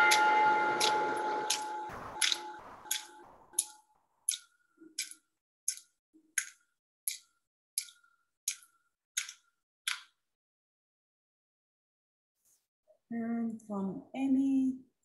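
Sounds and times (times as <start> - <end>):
bell-like ringing: 0.0 - 3.4.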